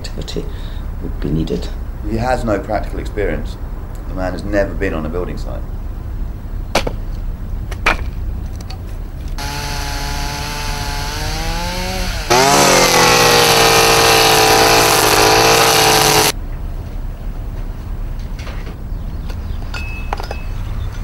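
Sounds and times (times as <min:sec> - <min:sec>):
axe splitting firewood: 0:09.4 - 0:16.4
brush cutter engine revving: 0:09.4 - 0:16.4
chainsaw cutting: 0:09.4 - 0:16.4.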